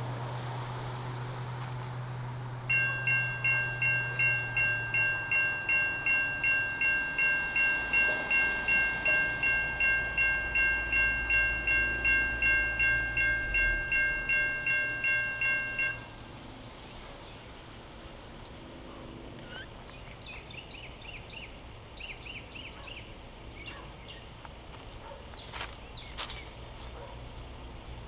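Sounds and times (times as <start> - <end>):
railroad crossing bells ringing: 2.7 - 16.4.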